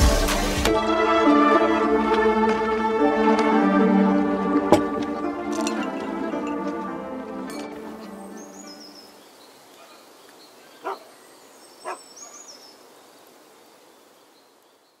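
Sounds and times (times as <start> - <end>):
birds chirping: 4.4 - 15.0
dog barking: 9.8 - 10.0, 10.8 - 11.1, 11.8 - 12.5.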